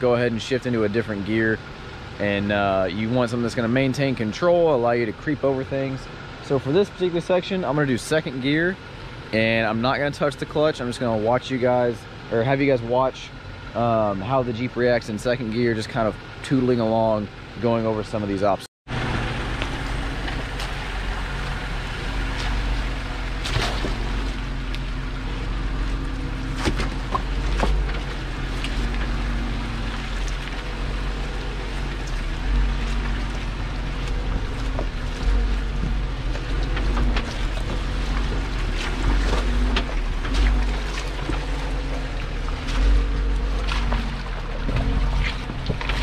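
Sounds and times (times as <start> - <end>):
car engine running at low revs: 0.0 - 46.0
tyres crunching on stones: 19.1 - 46.0.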